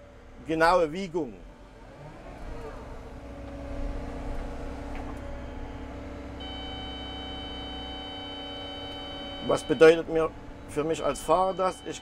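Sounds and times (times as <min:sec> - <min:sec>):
excavator engine hum: 0:00.0 - 0:12.0
high-pitched multi-tone whine: 0:06.4 - 0:10.2, 0:10.8 - 0:12.0.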